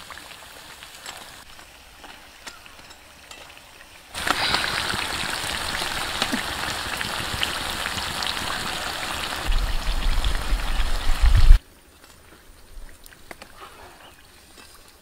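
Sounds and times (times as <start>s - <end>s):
food sizzling in oil: 4.1s - 11.6s
low rumble: 9.5s - 11.6s.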